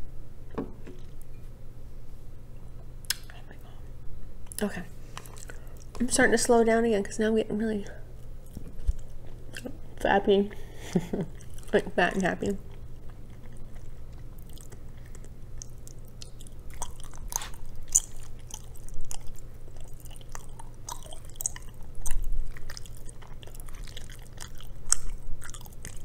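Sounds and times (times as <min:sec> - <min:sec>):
close chewing with mouth smacks: 0:04.5 - 0:06.1, 0:08.1 - 0:26.0.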